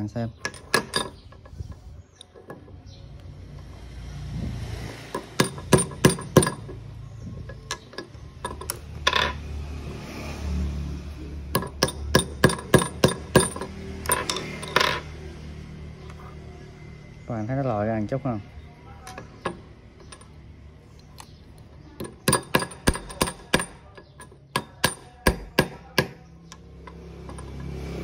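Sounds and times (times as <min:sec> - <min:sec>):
hammer tapping metal: 0:05.1 - 0:06.8, 0:11.5 - 0:15.1, 0:22.0 - 0:27.8.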